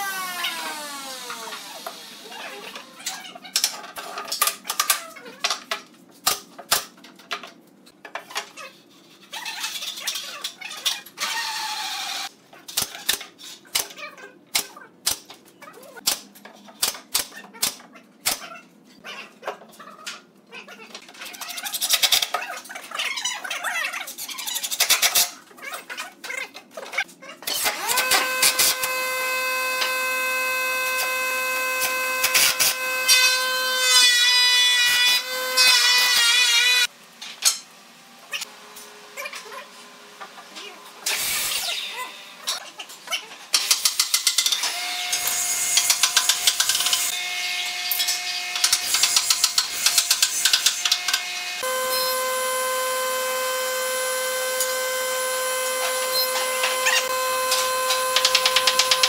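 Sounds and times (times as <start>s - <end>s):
impact driver whining: 51.6s - 59.0s.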